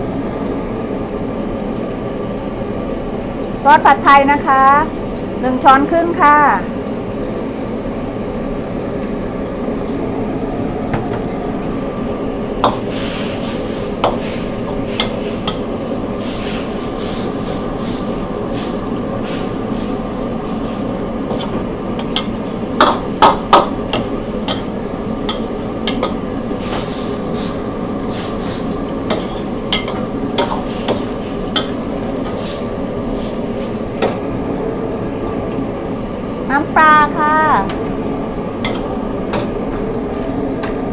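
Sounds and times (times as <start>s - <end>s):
noodles sizzling in a wok: 0.0s - 40.9s
ladle scraping a wok: 12.6s - 34.0s.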